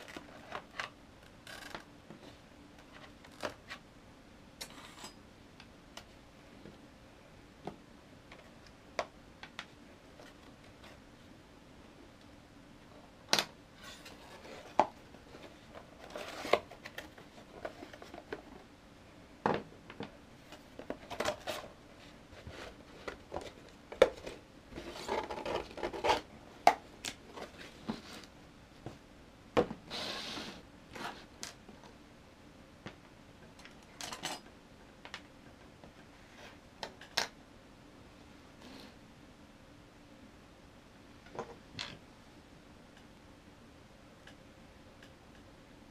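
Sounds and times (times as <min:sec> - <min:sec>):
cardboard and plastic rustling: 0:13.8 - 0:18.6, 0:20.5 - 0:26.3.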